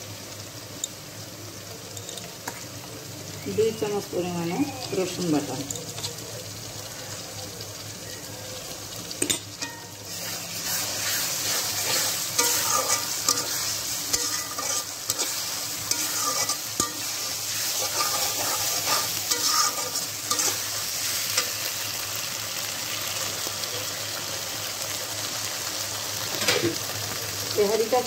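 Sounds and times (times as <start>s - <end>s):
onions sizzling in hot oil: 0.0s - 28.0s
spatula scraping metal pan: 9.6s - 21.6s.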